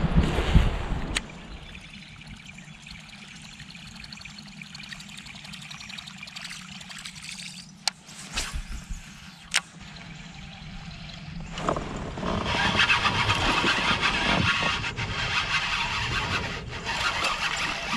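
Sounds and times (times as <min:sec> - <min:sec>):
water trickling and dripping: 0:01.1 - 0:08.2, 0:09.0 - 0:12.0.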